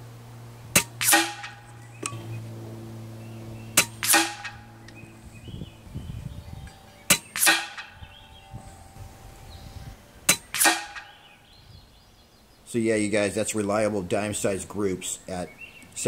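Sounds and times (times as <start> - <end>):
air rifle shots cracking: 0.7 - 2.2, 3.8 - 5.0, 7.1 - 8.0, 10.3 - 11.2
pellet striking target: 0.7 - 2.2, 3.7 - 4.8, 7.0 - 8.1, 10.3 - 11.2.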